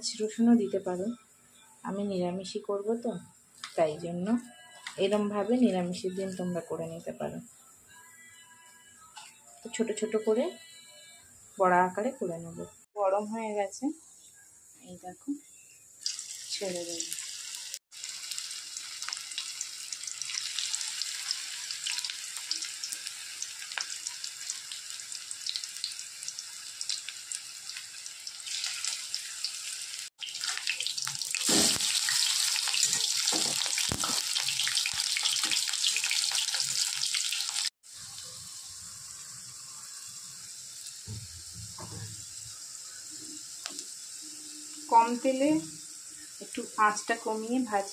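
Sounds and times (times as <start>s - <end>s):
fritters sizzling in hot oil: 15.6s - 47.9s.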